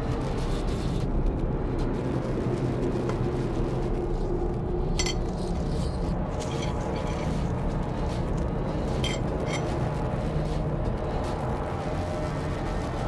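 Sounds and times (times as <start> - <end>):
low background rumble: 0.0 - 13.0
spoon scraping on bread: 5.0 - 9.9.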